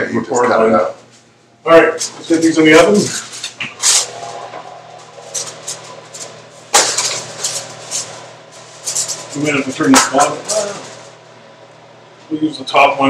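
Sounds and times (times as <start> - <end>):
metal oven rack clanking: 5.1 - 11.0.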